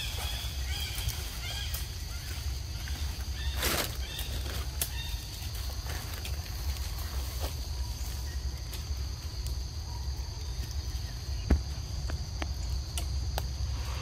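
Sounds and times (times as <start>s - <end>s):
high insect drone: 0.0s - 14.0s.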